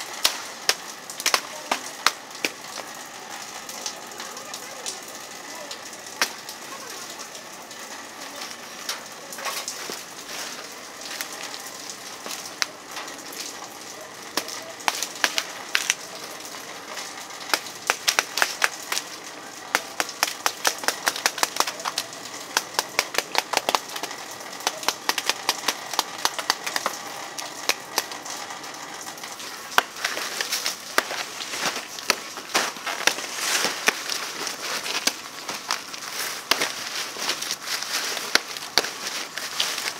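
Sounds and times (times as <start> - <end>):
steady hiss: 0.0 - 39.9
cleaver chopping banana leaves: 0.2 - 2.6, 14.3 - 16.3, 16.9 - 28.2, 29.4 - 39.9.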